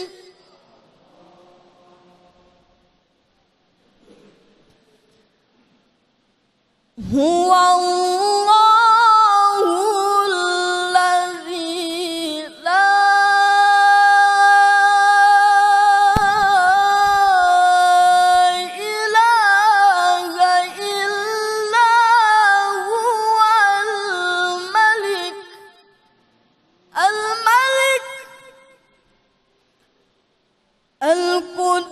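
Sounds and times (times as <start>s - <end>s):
man reciting melodically: 0.0s - 0.6s.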